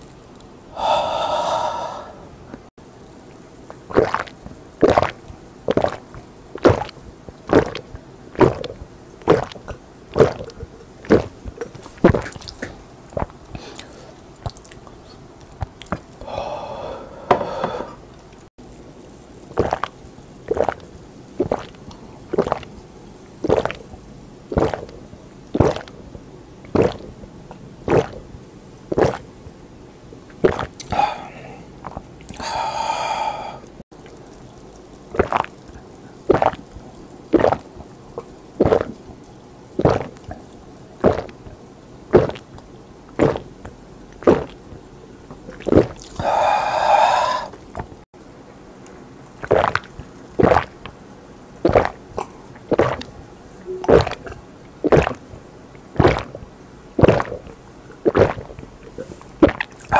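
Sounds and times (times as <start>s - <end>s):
long breathy exhale: 0.7s - 2.3s, 16.2s - 18.0s, 30.9s - 31.7s, 32.4s - 33.8s, 46.2s - 47.6s
person gulping soda: 3.0s - 28.3s, 28.9s - 29.4s, 30.2s - 44.7s, 45.3s - 48.0s, 49.2s - 51.0s, 51.6s - 59.9s.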